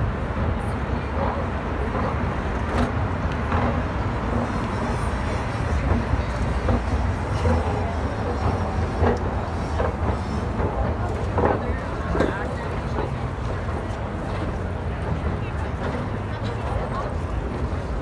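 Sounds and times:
faint voices of passers-by: 0:00.0 - 0:18.0
traffic rumble: 0:00.0 - 0:18.0.

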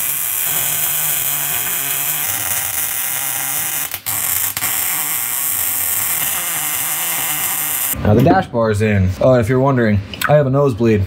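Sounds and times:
welder arc buzzing: 0:00.0 - 0:08.0.

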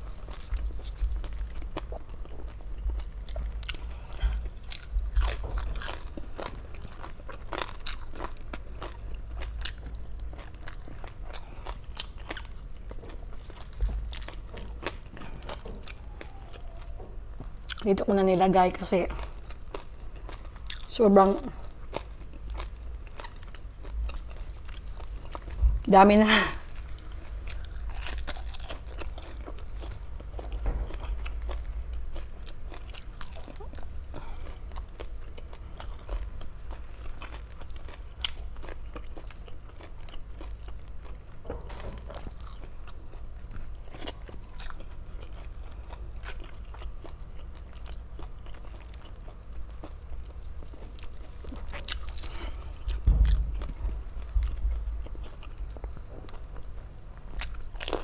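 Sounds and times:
crunchy chewing: 0:00.0 - 0:17.0, 0:19.0 - 0:25.6, 0:26.6 - 0:58.0
low bump: 0:52.9 - 0:56.4.

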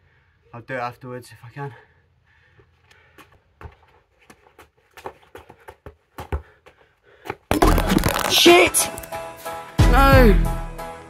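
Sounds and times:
shoe scuffs on paving: 0:03.2 - 0:07.5.

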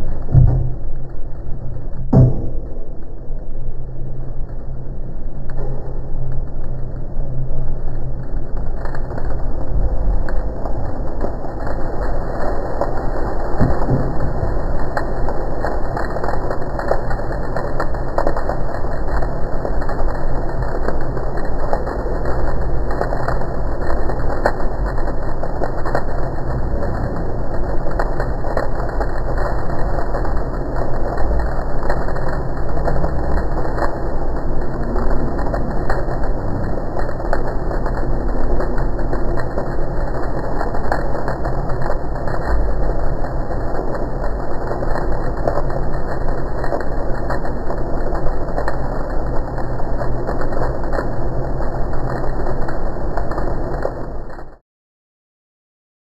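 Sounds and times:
machine hum: 0:00.0 - 0:08.5.

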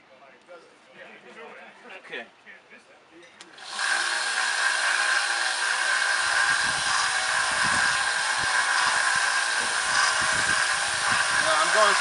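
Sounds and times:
belt sander whirring: 0:03.5 - 0:12.0
blade grinding on sanding belt: 0:03.6 - 0:12.0.

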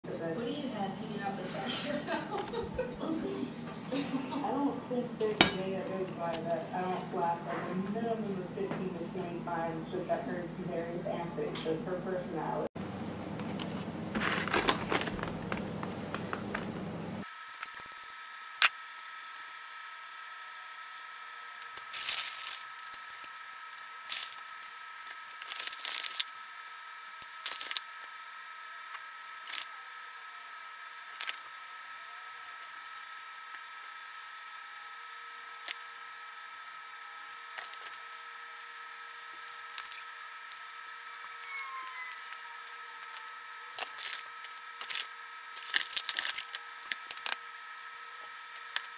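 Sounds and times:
faint high whine: 0:00.1 - 0:48.9
toppings clicking and rustling: 0:13.4 - 0:16.9
plastic egg carton handled: 0:13.6 - 0:16.8.

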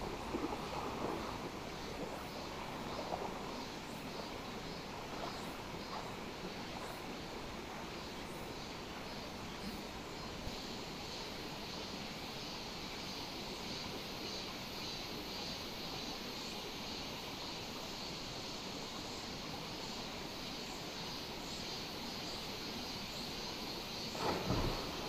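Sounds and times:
stream water over rocks: 0:00.0 - 0:25.0.

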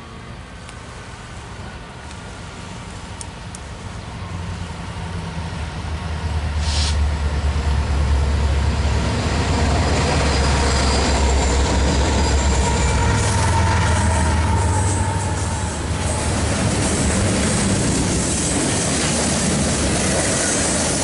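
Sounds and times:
deep locomotive engine rumble: 0:00.0 - 0:21.0
faint high wheel squeal: 0:10.2 - 0:17.0.

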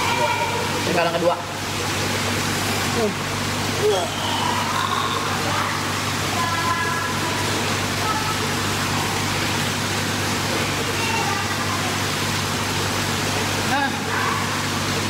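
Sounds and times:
indoor swimming pool rushing noise: 0:00.0 - 0:15.0
low steady hum: 0:00.0 - 0:15.0.

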